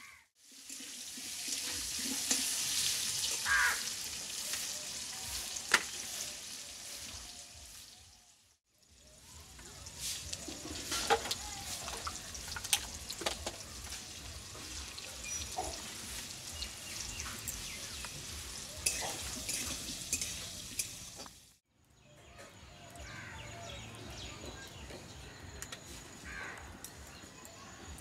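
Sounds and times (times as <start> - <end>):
oil hissing in a wok: 0.4 - 21.6
firewood and utensils knocking: 5.6 - 6.0, 10.3 - 21.4.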